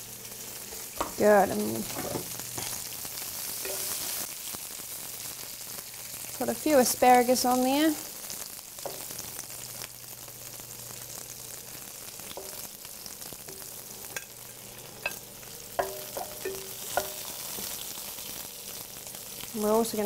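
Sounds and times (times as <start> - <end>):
asparagus sizzling in oil: 0.0 - 20.0
metal tongs clicking on pan: 13.5 - 14.4, 15.8 - 17.7.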